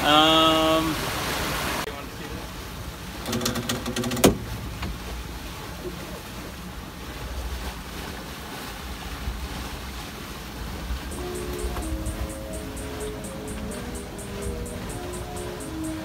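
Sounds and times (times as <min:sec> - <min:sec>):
water rushing along hull: 0:00.0 - 0:16.0.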